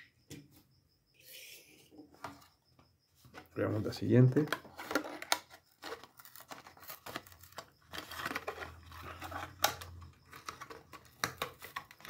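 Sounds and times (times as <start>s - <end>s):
plastic blister crinkling: 4.2s - 12.0s.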